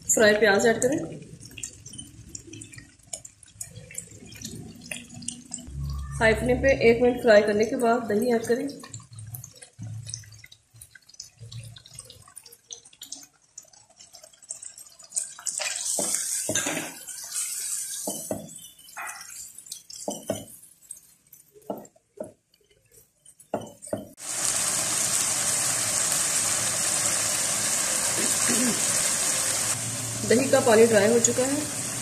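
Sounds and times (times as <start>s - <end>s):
loud steady sizzle: 0.0s - 21.8s, 24.2s - 32.0s
chicken frying in oil: 0.0s - 32.0s
spatula stirring and knocking pan: 14.0s - 24.2s.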